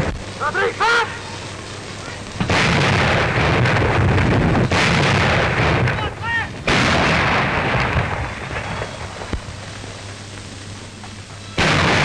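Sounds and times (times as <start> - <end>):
heavy artillery blasts with rumble: 2.4 - 9.6, 11.6 - 12.0.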